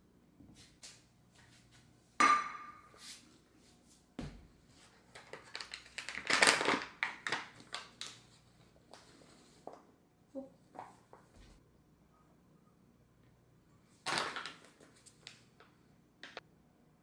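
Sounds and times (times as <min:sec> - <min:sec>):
paper bag crackling: 0:05.4 - 0:08.2.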